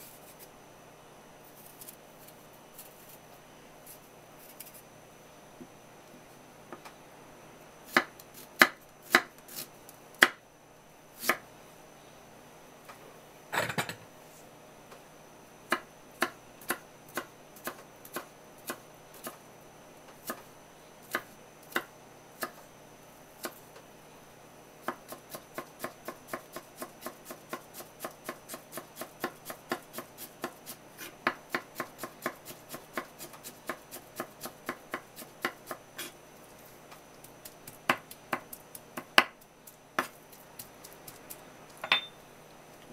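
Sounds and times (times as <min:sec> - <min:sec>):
knife scrape: 0:00.0 - 0:00.5, 0:01.5 - 0:03.2, 0:03.8 - 0:04.9, 0:30.2 - 0:31.2, 0:36.0 - 0:36.2
knife chopping on wooden board: 0:24.9 - 0:36.1, 0:40.0 - 0:40.2.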